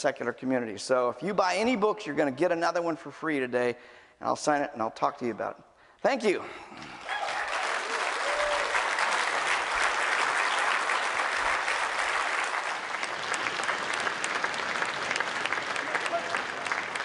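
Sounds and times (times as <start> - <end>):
audience applauding: 6.9 - 17.0.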